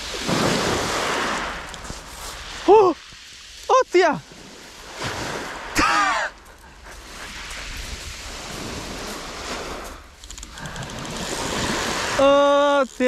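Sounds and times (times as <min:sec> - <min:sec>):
waves washing on shingle: 0:00.0 - 0:13.0
man's startled cry: 0:05.8 - 0:06.4.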